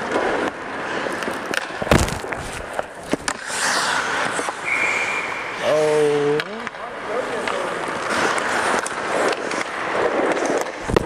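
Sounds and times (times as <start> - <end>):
hockey stick clacks: 0.0 - 5.4, 6.3 - 11.0
puck shot crack: 0.0 - 5.4, 6.3 - 11.0
skates scraping ice: 0.0 - 11.0
high whistle: 4.6 - 5.6.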